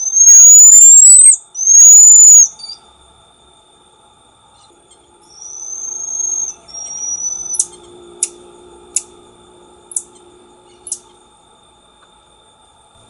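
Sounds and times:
marmoset high whistles: 0.0 - 2.8, 5.3 - 7.8
marmoset sharp chirps: 0.0 - 2.8, 5.3 - 8.4.

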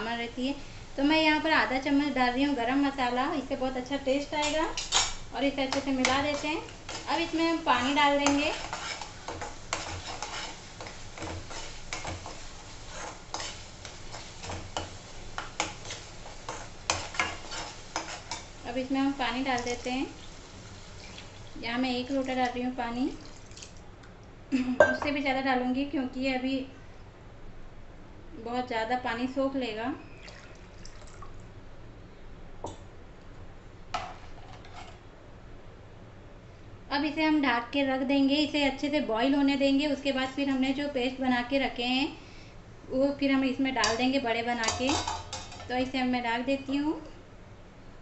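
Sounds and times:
paste sizzling in oil: 0.4 - 23.8
spoon scraping metal pan: 4.4 - 18.5
water pouring into pan: 20.9 - 21.6, 23.2 - 23.8, 30.2 - 31.3.

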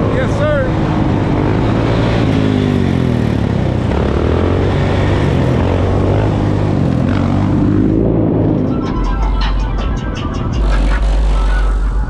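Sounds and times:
off-road engines revving: 0.0 - 8.8.

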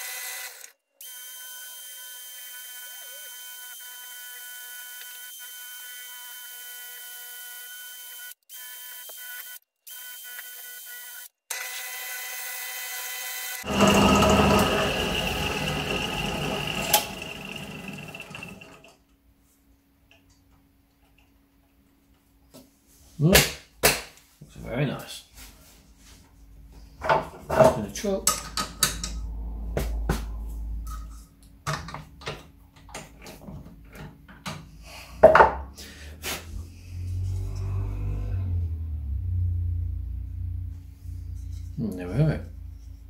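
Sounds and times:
wood lathe whining: 13.3 - 18.9
rough polishing noise: 13.6 - 18.9.

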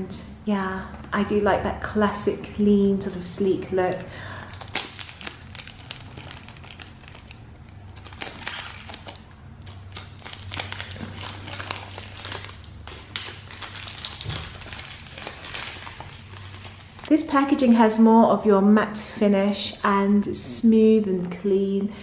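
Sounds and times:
cellophane crinkling: 2.7 - 17.6.

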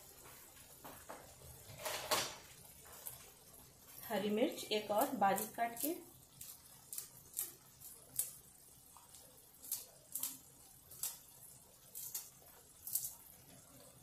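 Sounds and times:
scissors snipping chilli: 4.9 - 8.4, 9.0 - 11.3, 11.9 - 13.2.

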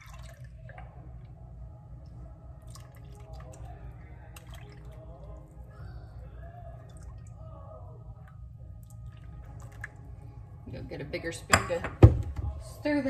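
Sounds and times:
liquid pouring and splashing: 0.0 - 1.1, 2.6 - 5.7, 8.8 - 10.2
steady low hum: 0.0 - 13.0.

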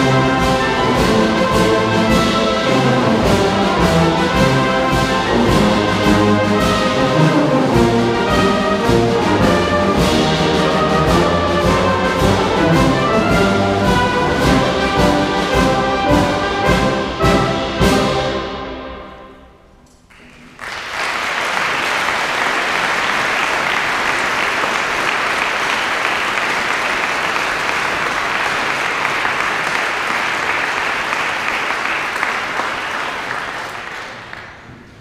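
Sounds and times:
brass band chord: 0.0 - 19.4
audience applauding: 20.1 - 35.0.

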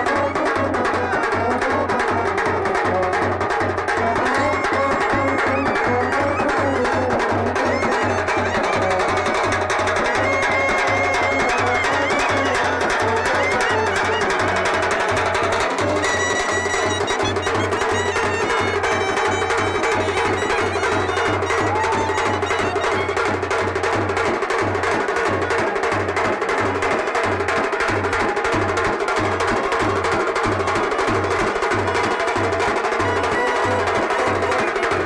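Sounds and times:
drum-led procession music: 0.0 - 35.0
held high tones: 4.3 - 23.4, 29.7 - 35.0.

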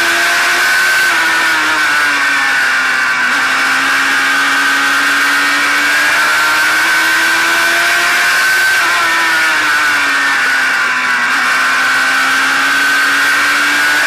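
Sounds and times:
race car engine accelerating: 0.0 - 14.0.

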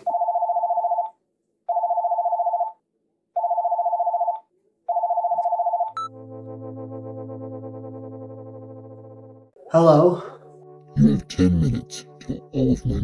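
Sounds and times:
telephone ringing: 0.1 - 2.8, 3.4 - 6.2.

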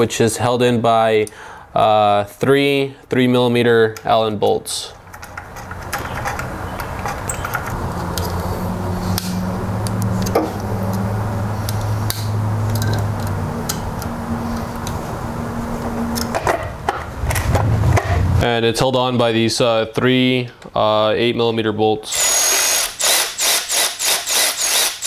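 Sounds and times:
hex key clicking on bolts: 5.1 - 8.4
steady low hum: 7.1 - 19.6.

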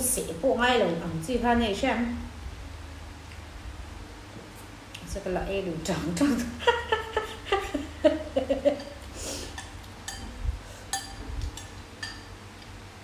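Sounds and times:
spoons clinking against bowls: 8.7 - 12.3.

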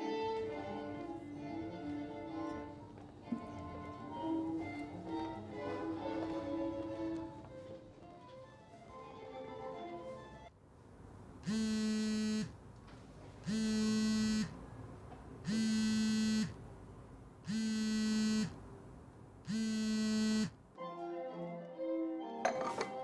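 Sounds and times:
phone vibrating on a table: 11.4 - 12.6, 13.4 - 14.6, 15.5 - 16.6, 17.5 - 18.6, 19.5 - 20.6.

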